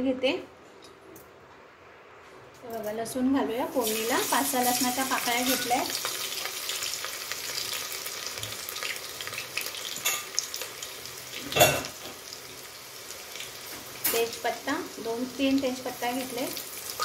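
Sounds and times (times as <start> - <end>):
garlic sizzling in hot oil: 3.7 - 17.0.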